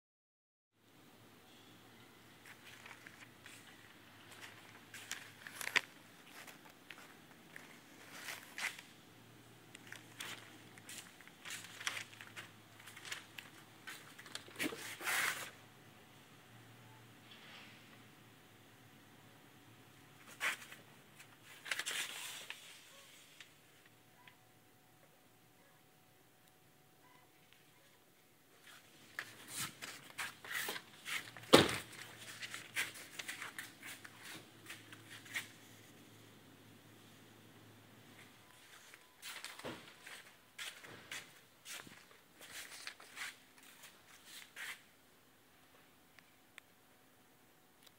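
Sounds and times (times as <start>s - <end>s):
rustling and clicking movement: 2.4s - 8.9s, 28.6s - 36.0s.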